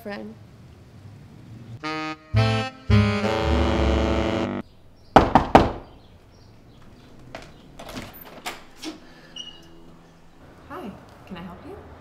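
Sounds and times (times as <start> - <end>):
loud knocks on a door: 5.2 - 6.0.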